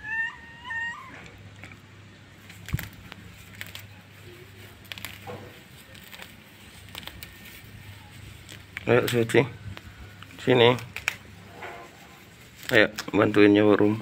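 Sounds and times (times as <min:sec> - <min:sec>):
kitten mewing: 0:00.0 - 0:01.8.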